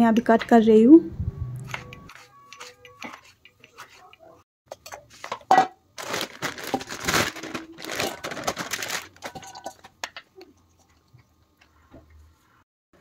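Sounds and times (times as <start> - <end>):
vegetables rustling in bowl: 6.0 - 9.9
steel bowl clanking and ringing: 9.2 - 9.8.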